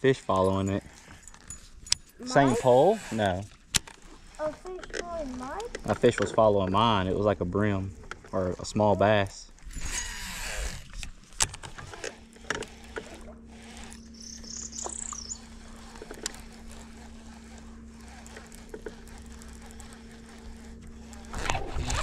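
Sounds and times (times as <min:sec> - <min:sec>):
electric motor humming: 0:00.1 - 0:22.0
bird chirp: 0:14.0 - 0:15.6.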